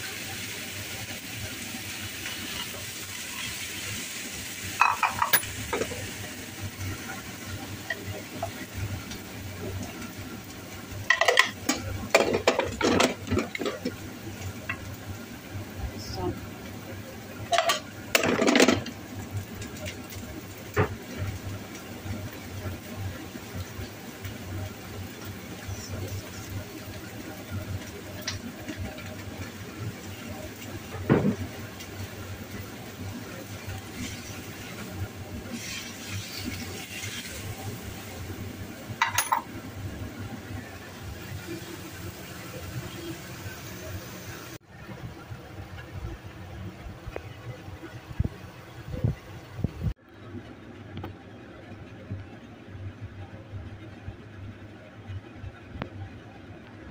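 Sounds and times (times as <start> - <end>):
gas stove low rumble: 0.0 - 56.9
metal kitchenware clattering: 4.8 - 6.0, 11.1 - 14.0, 17.5 - 18.9, 39.0 - 39.6
spatula scraping in wok: 35.4 - 37.6.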